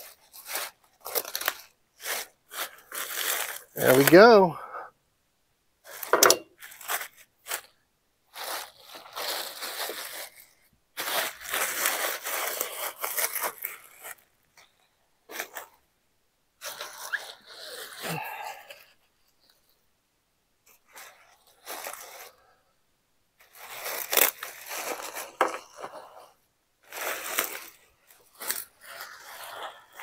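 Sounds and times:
crinkly wrapping rustling: 0:00.0 - 0:04.5, 0:05.8 - 0:15.8, 0:20.7 - 0:22.5, 0:23.4 - 0:30.0.

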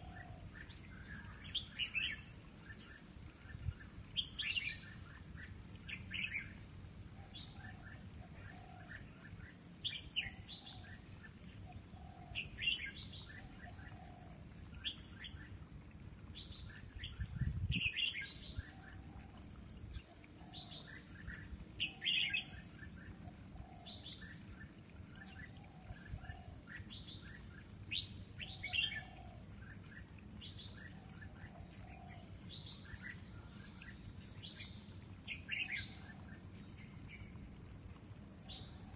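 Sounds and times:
birds singing chirpy phrases: 0:16.4 - 0:37.4.

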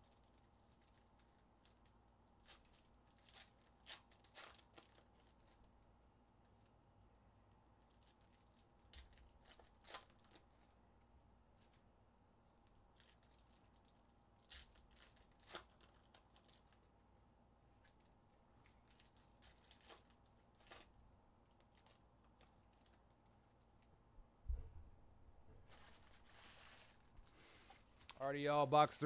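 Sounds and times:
foil wrappers tearing: 0:00.0 - 0:05.7, 0:07.9 - 0:10.7, 0:12.9 - 0:16.9, 0:18.6 - 0:23.0, 0:25.7 - 0:28.2.

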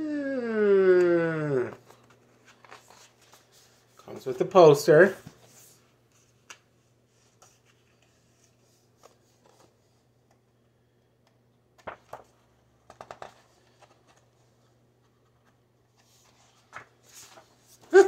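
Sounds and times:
paper rustling and crinkling: 0:01.8 - 0:04.3, 0:11.8 - 0:18.0.

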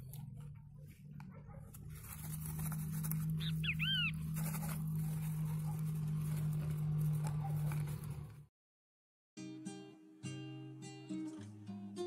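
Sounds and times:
high animal chirps: 0:03.4 - 0:04.3.

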